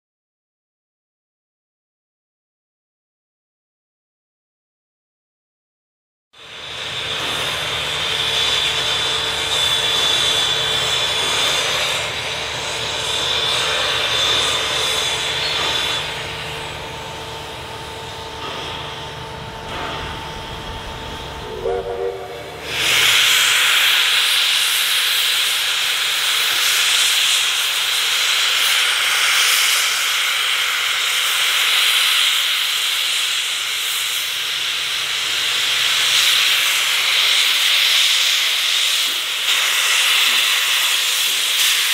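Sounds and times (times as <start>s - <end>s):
loud rush of escaping steam: 6.4s - 17.2s, 19.6s - 41.9s
steam locomotive hissing: 6.4s - 41.9s
rising tone: 20.1s - 23.3s.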